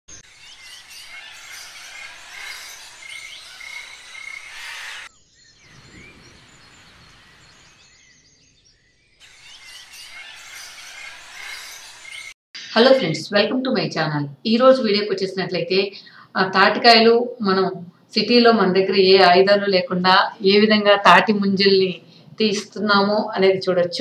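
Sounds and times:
birds chirping and calling: 0.1s - 12.8s
whistled bird notes: 0.1s - 12.8s.

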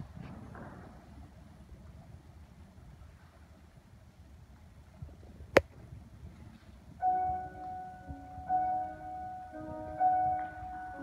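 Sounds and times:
grand piano playing chords: 7.0s - 11.0s.

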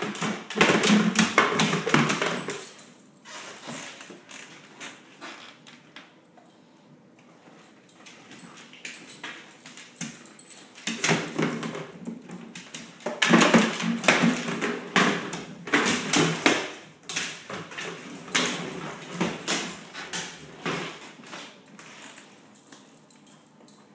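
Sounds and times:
dog claws clicking on floor: 7.6s - 23.9s.

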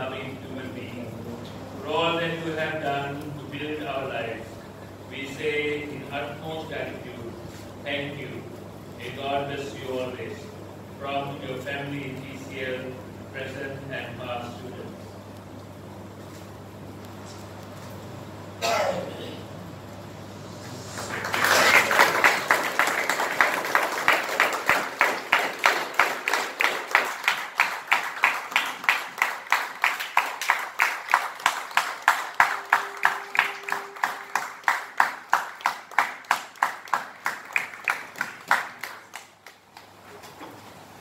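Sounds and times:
audience applause: 20.7s - 39.9s
rhythmic clapping in unison: 21.0s - 40.0s.

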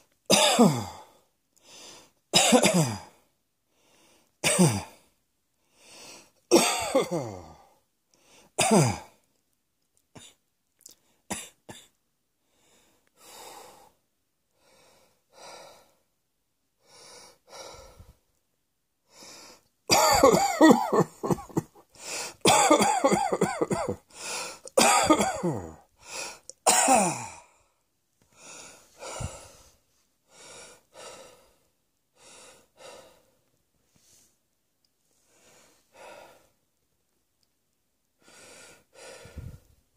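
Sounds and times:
person coughing: 0.3s - 1.1s, 2.4s - 3.2s, 4.4s - 5.0s, 6.5s - 7.7s, 8.6s - 9.2s, 19.9s - 24.1s, 24.7s - 25.8s, 26.6s - 27.5s
person breathing: 1.0s - 2.2s, 3.7s - 4.4s, 5.0s - 6.4s, 7.5s - 8.6s, 12.4s - 16.1s, 16.8s - 18.4s, 19.0s - 19.7s, 21.9s - 22.4s, 24.1s - 24.7s, 26.0s - 26.6s, 27.3s - 34.4s, 35.1s - 36.6s, 38.2s - 39.8s.

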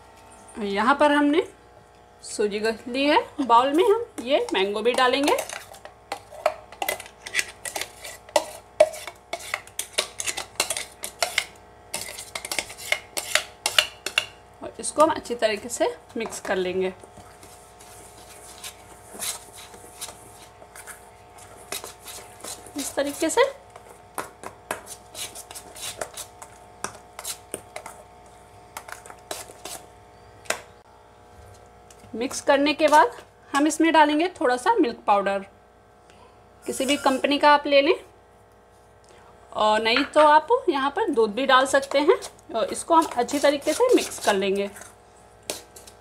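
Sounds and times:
metal spoon scraping steel bowl: 3.6s - 14.3s, 17.4s - 23.6s, 24.8s - 28.0s, 28.9s - 29.9s, 32.3s - 33.2s, 36.7s - 37.4s, 41.6s - 46.0s.

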